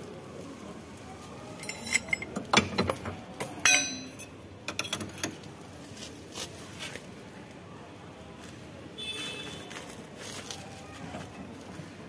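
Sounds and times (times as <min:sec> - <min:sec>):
pry bar clanking on metal: 0:01.6 - 0:05.4.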